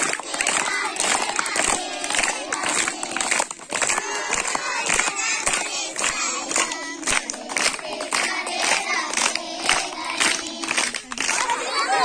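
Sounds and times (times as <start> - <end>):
hand claps: 0.0 - 12.0
children's voices: 8.3 - 12.0.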